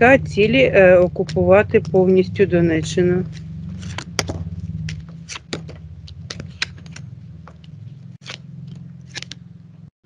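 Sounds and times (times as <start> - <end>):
steady low hum: 0.0 - 9.9
cards clicking and snapping: 3.3 - 9.5.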